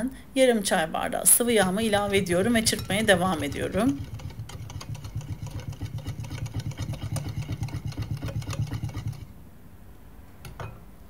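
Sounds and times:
whisk beating in bowl: 1.4 - 9.3.

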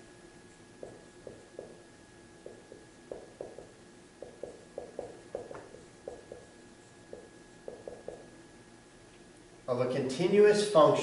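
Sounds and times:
marker writing on whiteboard: 2.4 - 8.2.

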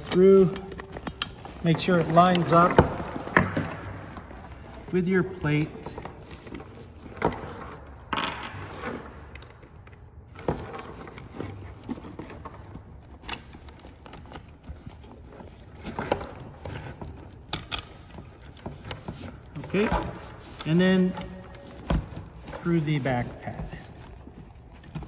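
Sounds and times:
nylon webbing rustling: 10.3 - 25.0.

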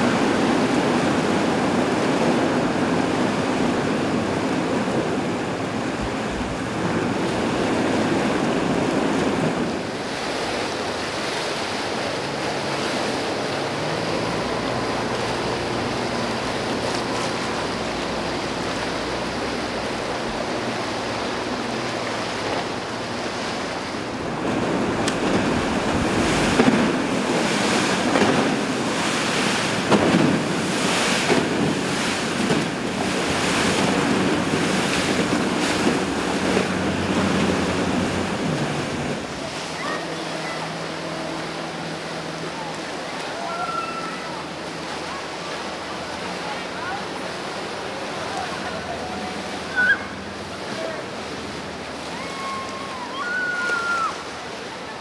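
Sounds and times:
churning water splashing: 0.0 - 55.0
low boat engine drone: 0.0 - 55.0
wind buffeting microphone: 19.4 - 39.7.

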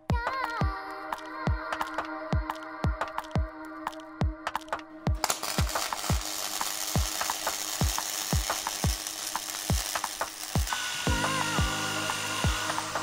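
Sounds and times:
background music with kick drum: 0.0 - 13.0
welder arc crackling and sizzling: 3.0 - 13.0.

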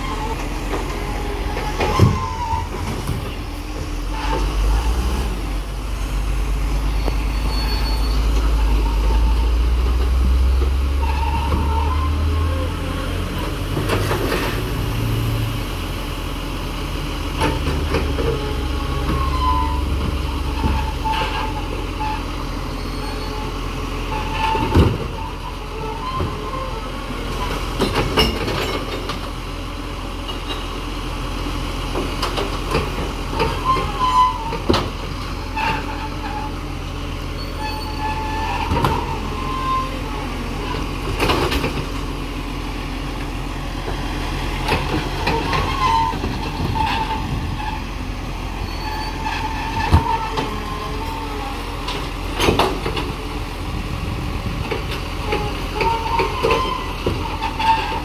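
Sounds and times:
hydraulic arm squeaks: 0.0 - 2.9, 6.9 - 9.6, 11.0 - 12.6, 18.2 - 23.5, 33.4 - 34.7, 37.3 - 40.8, 45.2 - 48.0, 48.6 - 51.6, 55.3 - 58.0
truck engine hum: 0.0 - 58.0.

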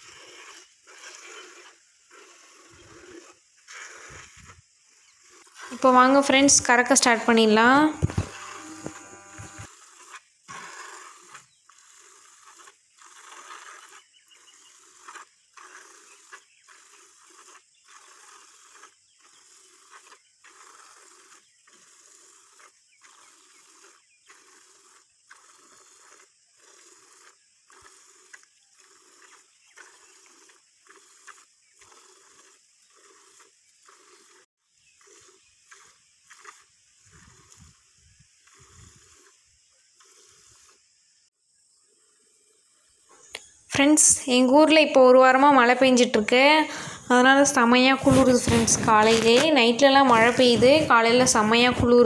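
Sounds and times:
milk squirts into bucket: 14.7 - 37.7.

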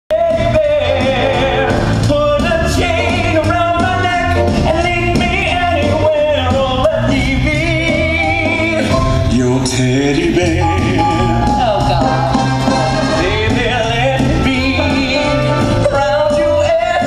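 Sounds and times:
person singing: 0.1 - 17.0
rock and roll band: 0.1 - 17.0.

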